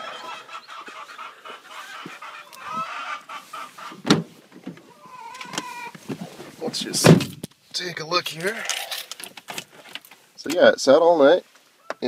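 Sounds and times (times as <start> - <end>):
chickens clucking and squawking: 0.0 - 6.5.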